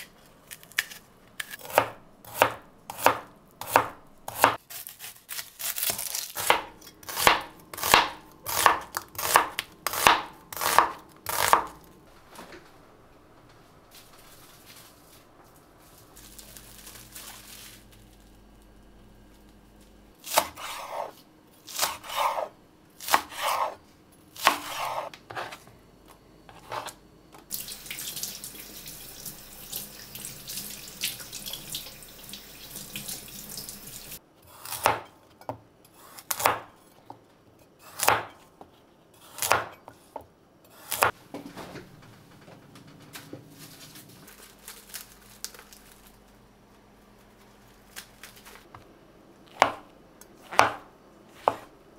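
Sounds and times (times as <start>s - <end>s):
knife chopping on cutting board: 0.8s - 4.6s, 5.8s - 11.8s, 20.2s - 23.8s, 24.4s - 25.6s, 34.6s - 36.7s, 37.8s - 38.4s, 39.2s - 41.2s, 49.5s - 51.7s.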